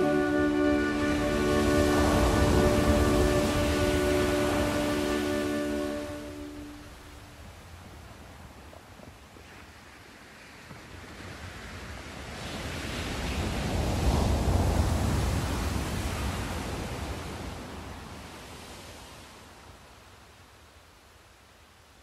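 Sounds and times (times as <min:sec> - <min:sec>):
low rushing noise: 0:00.0 - 0:07.5.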